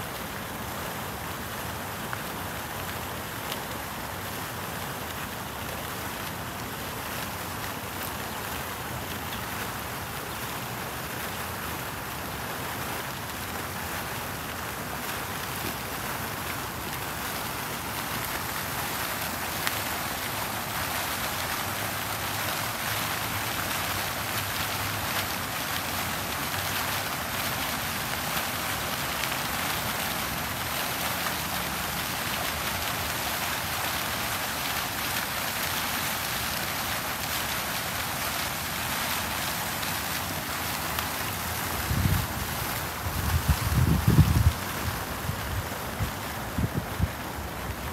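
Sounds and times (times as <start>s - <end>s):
fountain jets splashing into pool: 0.0s - 47.9s.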